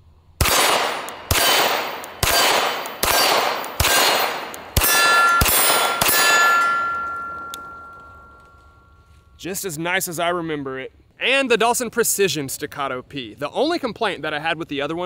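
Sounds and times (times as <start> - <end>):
pistol shots: 0.4 - 8.0
steel targets ringing: 0.5 - 9.4.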